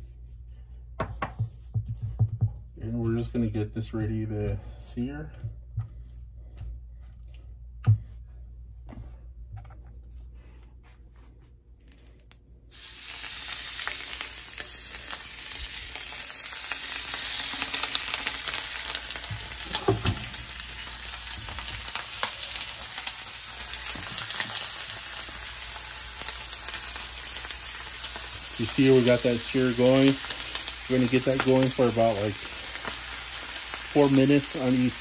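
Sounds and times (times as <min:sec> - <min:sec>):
chicken sizzling in pan: 0:12.7 - 0:35.0.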